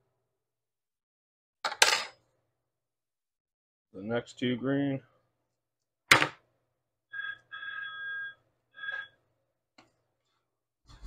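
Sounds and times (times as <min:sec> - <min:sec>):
electronic ringing tone: 0:07.1 - 0:09.2.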